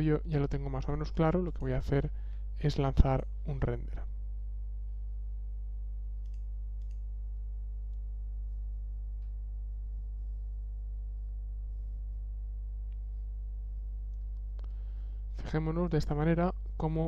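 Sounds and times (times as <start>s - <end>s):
electrical mains hum: 0.0s - 17.0s
faint clicks: 6.2s - 7.0s.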